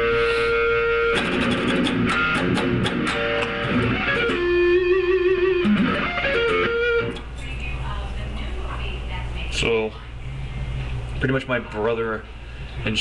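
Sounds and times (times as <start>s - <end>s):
electric guitar lead: 0.0s - 7.3s.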